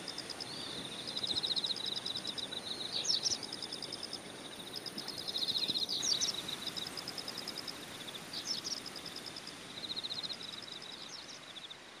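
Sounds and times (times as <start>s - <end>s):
insects trilling: 0.0s - 11.9s
steady low hiss: 0.0s - 12.0s.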